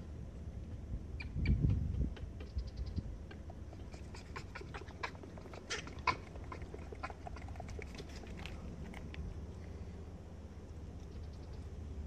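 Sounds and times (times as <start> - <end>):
monkey calls: 1.2 - 7.9
monkeys clicking: 1.6 - 9.2.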